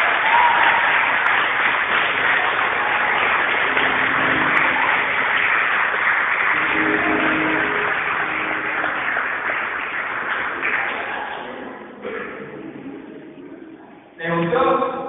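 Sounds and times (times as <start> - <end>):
audience applauding: 0.0 - 13.1
faint voices or music: 6.4 - 14.1.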